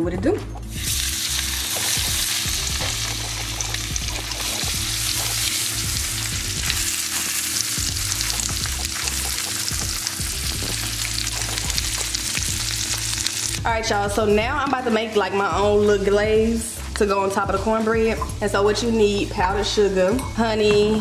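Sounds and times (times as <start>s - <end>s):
fish sizzling in oil: 0.7s - 13.7s.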